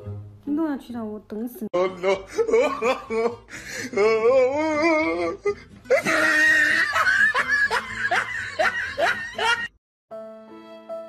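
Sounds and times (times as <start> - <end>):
person laughing hard: 1.8 - 4.1, 4.8 - 9.8.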